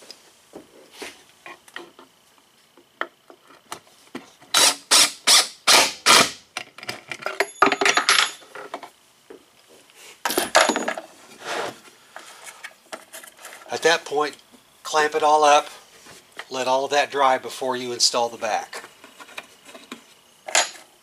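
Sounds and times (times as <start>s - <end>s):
impact driver driving screw: 4.6s - 6.4s.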